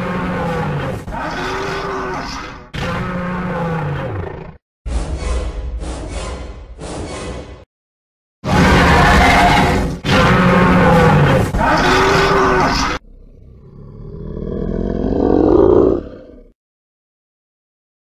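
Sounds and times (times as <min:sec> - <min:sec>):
low monster roar: 0:00.0 - 0:04.6, 0:08.5 - 0:16.6
monster growling roars: 0:00.0 - 0:04.6, 0:08.5 - 0:16.6.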